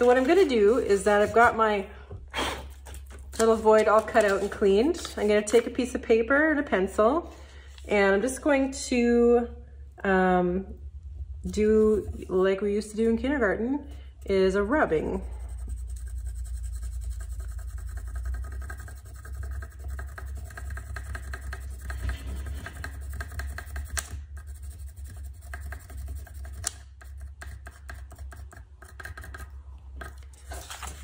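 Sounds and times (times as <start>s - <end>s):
pencil scratching on paper: 0.0s - 1.6s, 14.8s - 31.0s
low steady hum: 0.0s - 31.0s.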